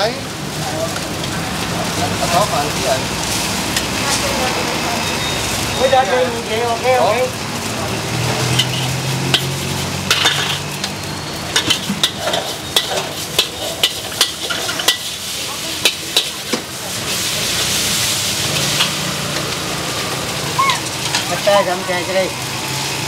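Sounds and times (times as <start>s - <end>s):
food sizzling in wok: 0.0s - 23.0s
spatula scraping and striking wok: 8.2s - 20.2s.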